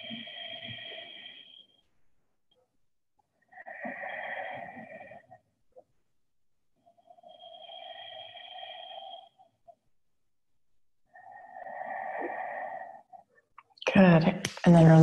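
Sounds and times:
deep breaths: 0.0 - 1.8, 3.3 - 5.6, 6.8 - 9.8, 11.0 - 13.5.

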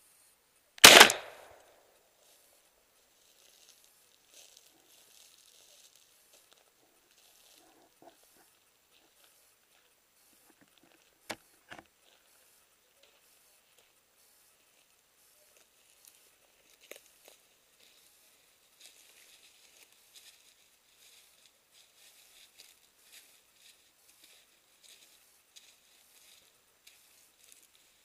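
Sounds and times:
sharp click: 0.8 - 1.6
footsteps crunching through dry leaves: 3.1 - 7.8, 15.7 - 28.0.

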